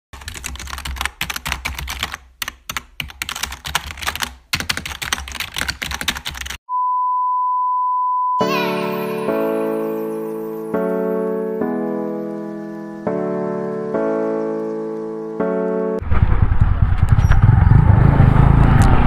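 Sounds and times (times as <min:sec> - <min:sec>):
steady beep: 0:06.7 - 0:08.5
piano music: 0:08.4 - 0:16.0.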